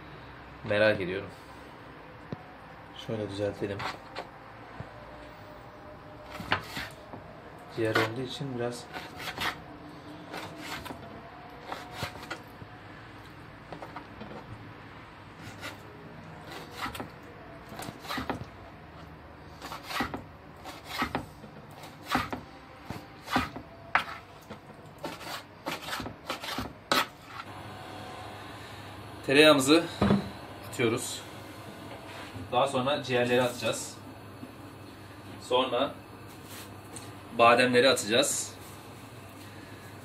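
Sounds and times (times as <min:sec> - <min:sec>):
soft rubbing of food pieces: 0:36.2 - 0:36.8.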